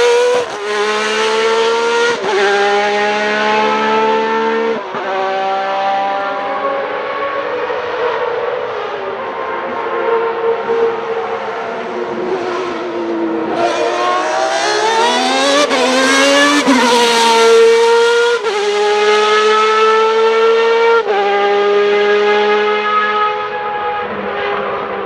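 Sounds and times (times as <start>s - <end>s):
race car engine wailing: 6.0s - 19.2s.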